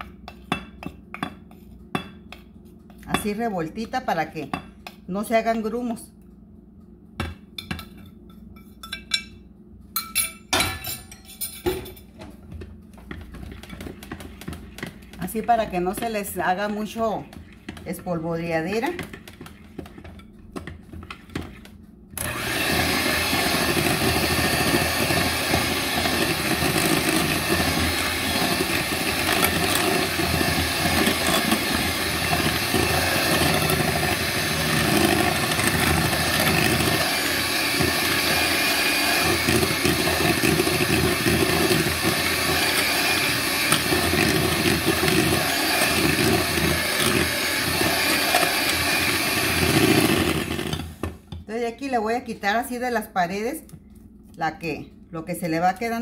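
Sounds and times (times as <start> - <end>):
electric hand mixer running: 22.2 - 51.1.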